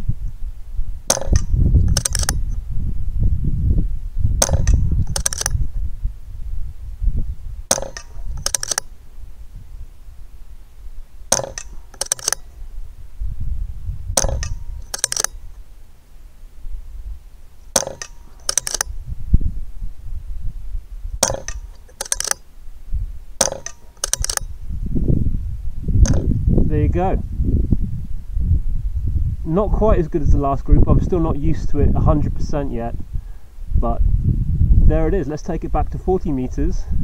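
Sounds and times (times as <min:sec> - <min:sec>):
wind on microphone: 0:00.0 - 0:15.7, 0:18.8 - 0:21.8, 0:22.7 - 0:37.0
air rifle shots clicking: 0:01.1 - 0:02.6, 0:04.4 - 0:05.8, 0:07.7 - 0:09.1, 0:11.3 - 0:12.7, 0:14.2 - 0:15.6, 0:17.6 - 0:19.0, 0:21.2 - 0:22.5, 0:23.4 - 0:24.6, 0:26.0 - 0:26.3.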